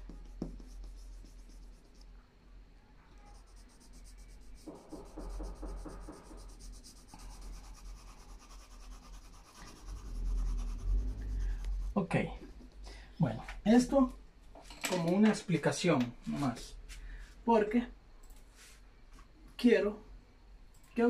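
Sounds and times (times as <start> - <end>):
pencil shading on paper: 0.0 - 2.1, 3.2 - 12.0.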